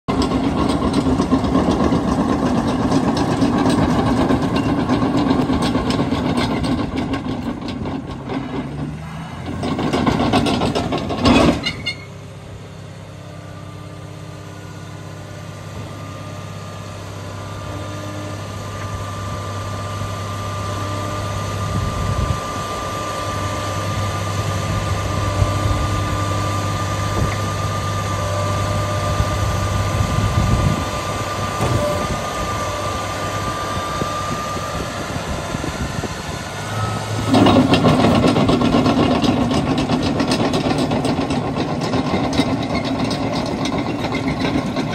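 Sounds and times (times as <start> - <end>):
machine rattling and knocking: 0.1 - 8.8, 9.4 - 11.9, 37.3 - 44.9
diesel engine running hard: 0.1 - 44.9.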